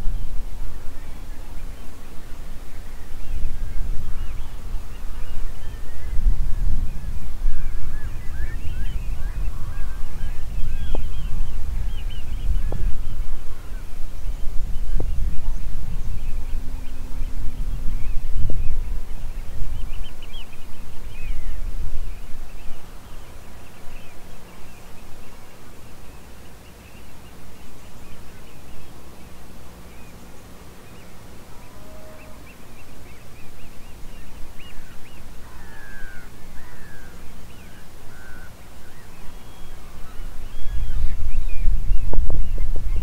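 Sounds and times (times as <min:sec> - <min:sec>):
birds chirping and calling: 0:00.0 - 0:43.0.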